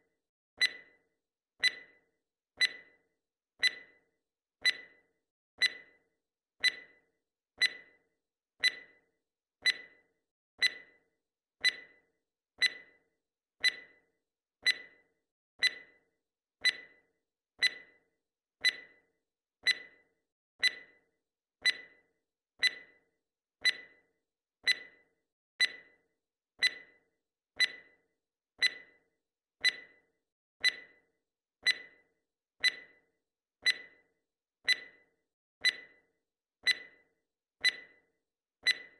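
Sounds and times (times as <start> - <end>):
countdown timer ticks: 0.6 - 1.0, 1.6 - 2.0, 2.6 - 3.0, 3.6 - 4.0, 4.6 - 5.0, 5.6 - 6.0, 6.6 - 8.0, 8.6 - 9.0, 9.6 - 11.0, 11.6 - 13.0, 13.6 - 16.0, 16.6 - 18.0, 18.6 - 21.0, 21.6 - 23.0, 23.6 - 26.0, 26.6 - 27.0, 27.6 - 28.0, 28.6 - 38.9.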